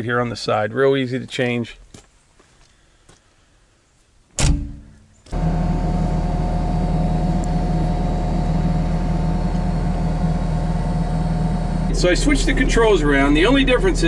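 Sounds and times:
sharp clunk: 0:04.4 - 0:05.1
diesel excavator engine idling: 0:05.3 - 0:14.0.

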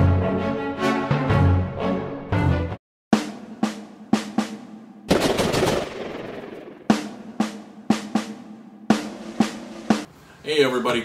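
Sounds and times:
snare drum hits: 0:03.2 - 0:10.1.

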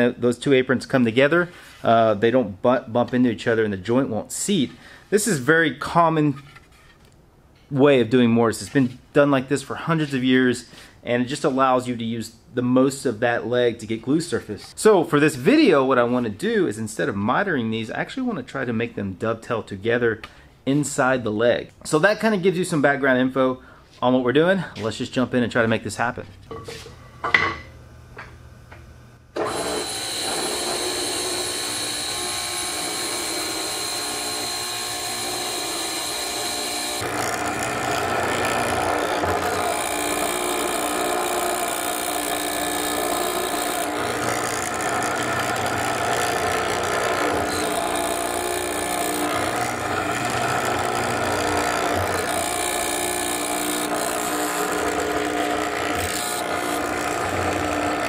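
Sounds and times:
mortiser boring into wood: 0:29.4 - 0:58.0.

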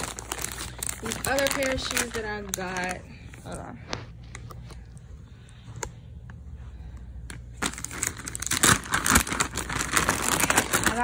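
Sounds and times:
plastic bag crinkling: 0:00.0 - 0:03.7, 0:07.5 - 0:11.0.

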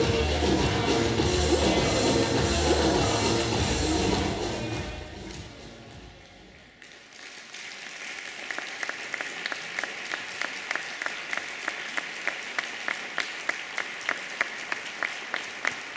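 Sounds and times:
sharp rhythmic claps: 0:06.2 - 0:15.9
audience applauding: 0:06.6 - 0:15.9.

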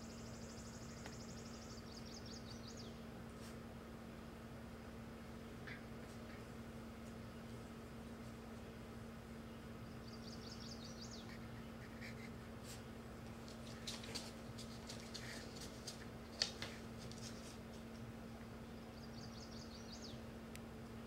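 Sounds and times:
dog moving clicks and rustles: 0:13.2 - 0:18.0.

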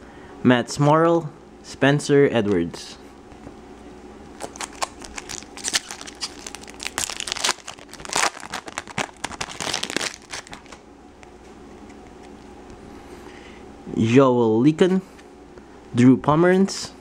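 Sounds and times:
foil wrapper crinkling and tearing: 0:04.3 - 0:10.8.

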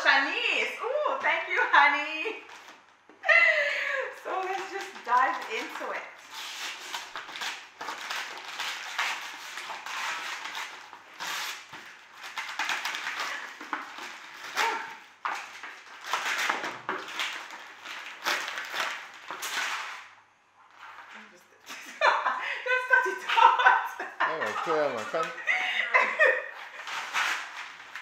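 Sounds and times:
wrapping paper tearing and crinkling: 0:04.2 - 0:21.1, 0:24.3 - 0:25.4, 0:26.2 - 0:28.0.

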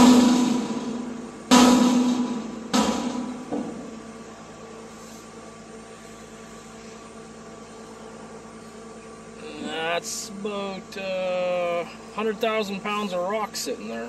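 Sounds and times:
metallic clangs from dump body: 0:00.0 - 0:04.0
truck engine running: 0:00.0 - 0:14.0.

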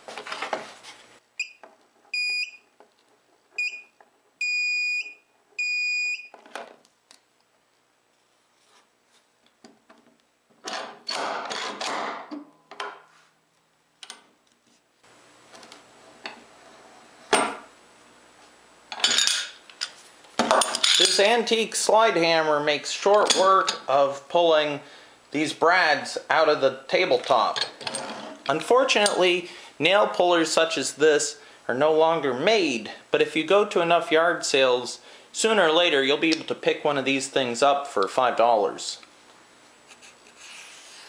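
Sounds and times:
metal detector beeping: 0:02.2 - 0:02.6
nail puller scraping wood: 0:10.6 - 0:12.1.

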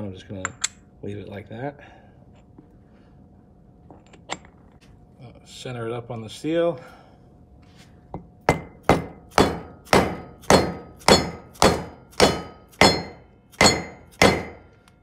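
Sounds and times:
hammer striking metal: 0:08.5 - 0:14.7.

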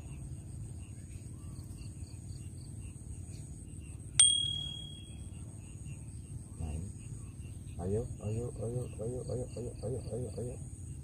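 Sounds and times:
insects chirping: 0:00.0 - 0:11.0
small bell ringing: 0:04.2 - 0:05.3.

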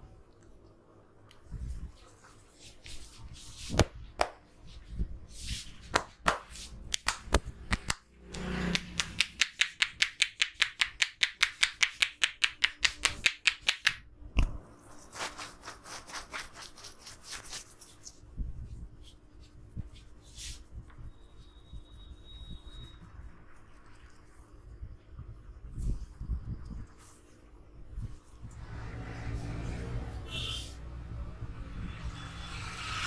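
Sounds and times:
hand slaps: 0:03.7 - 0:04.4, 0:05.9 - 0:14.5
hands tapping on head: 0:08.7 - 0:14.0.

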